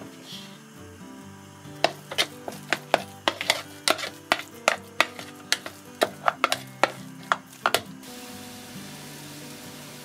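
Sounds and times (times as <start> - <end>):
spoon scraping plastic bowl: 1.8 - 8.0.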